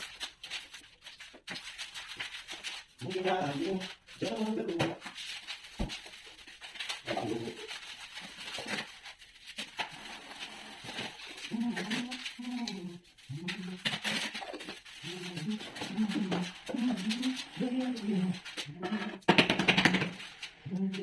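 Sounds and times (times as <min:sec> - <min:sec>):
tiles tapping and scraping: 0:00.0 - 0:21.0
dove cooing: 0:11.4 - 0:19.2.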